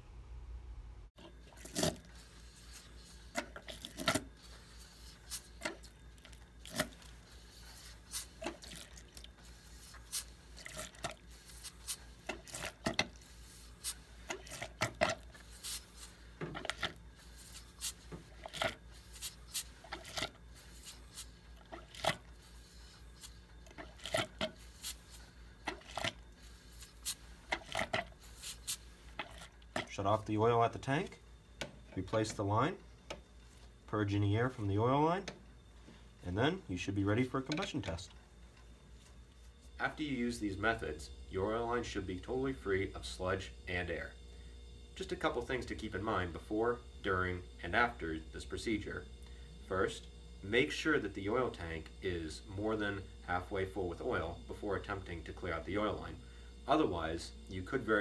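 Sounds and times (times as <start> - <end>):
oil squirting into cup: 1.3 - 29.6.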